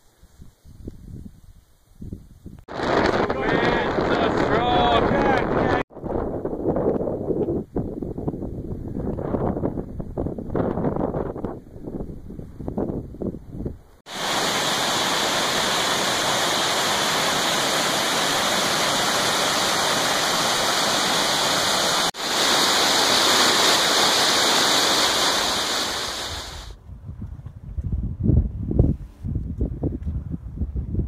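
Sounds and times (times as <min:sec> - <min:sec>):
white water rushing over rocks: 0:14.1 - 0:26.8.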